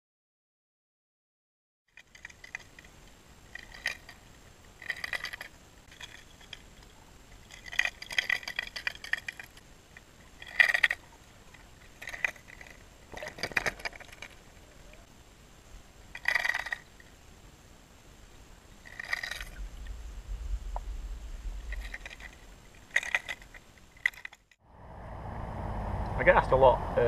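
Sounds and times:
underwater clicking and clinking: 4.8 - 9.6, 21.6 - 24.4.

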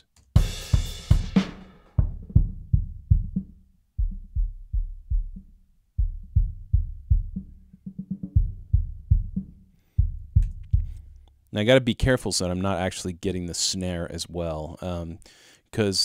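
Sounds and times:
drum kit loop: 0.0 - 11.2
muffled kick drum thumps: 0.4 - 11.2.

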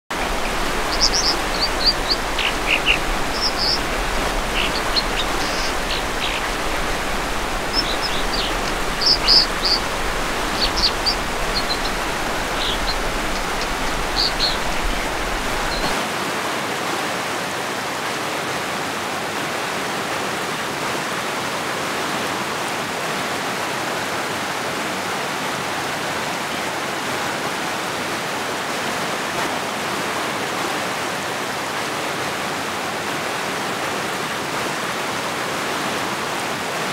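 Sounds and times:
high bird chirps: 0.1 - 16.0
creek flowing over rocks: 0.1 - 36.9.

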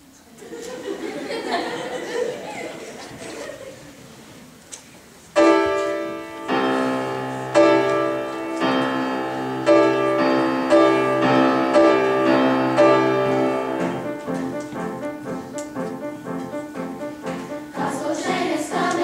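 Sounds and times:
upright piano chords: 5.4 - 19.0.

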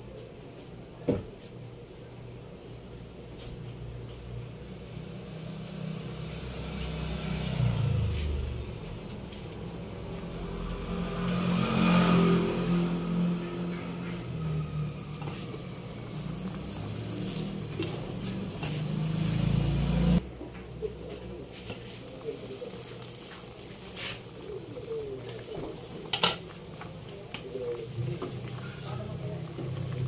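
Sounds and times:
vehicle engine running: 5.2 - 20.2.

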